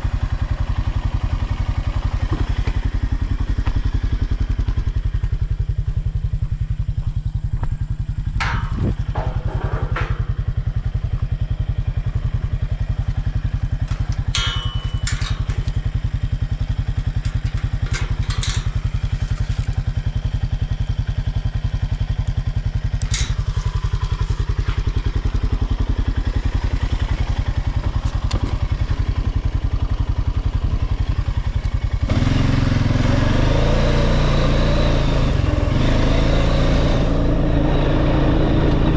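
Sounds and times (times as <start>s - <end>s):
atv engine: 0.0s - 38.9s
metal gate clanking and rattling: 8.3s - 11.1s, 13.3s - 20.0s, 22.9s - 25.0s.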